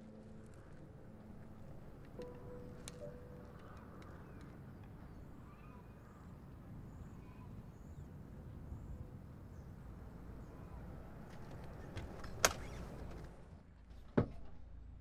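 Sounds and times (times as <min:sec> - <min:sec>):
low rumble of wind: 0:00.0 - 0:15.0
faint bird chirps: 0:02.2 - 0:08.1.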